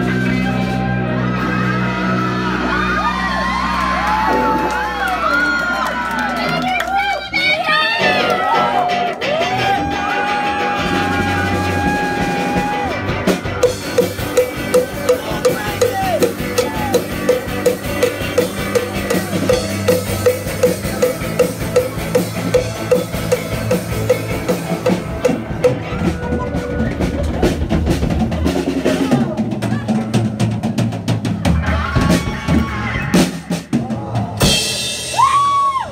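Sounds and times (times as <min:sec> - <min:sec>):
punk rock band playing: 0:00.0 - 0:35.9
drum kit beat: 0:07.5 - 0:35.9.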